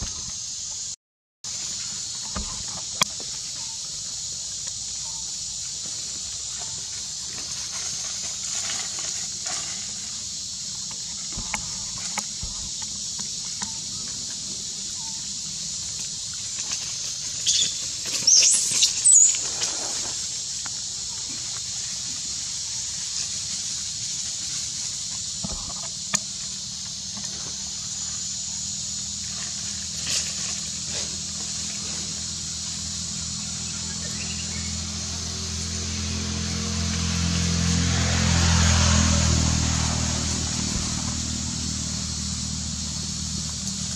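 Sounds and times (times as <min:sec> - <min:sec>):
dry leaves rustling: 0:05.8 - 0:26.7, 0:29.0 - 0:41.8.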